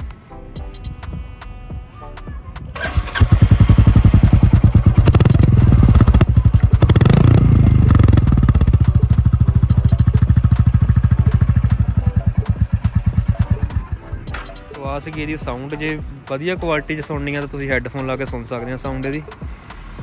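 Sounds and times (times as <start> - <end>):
motorcycle engine idling: 0.6 - 20.0
engine throttle blip: 2.2 - 14.7.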